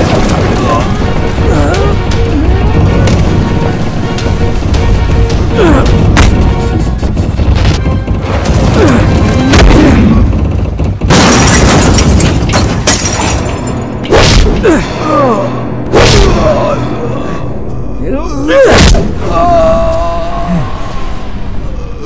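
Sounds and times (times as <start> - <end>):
dramatic background music: 0.0 - 22.0
loud explosion rumbling: 7.2 - 12.9.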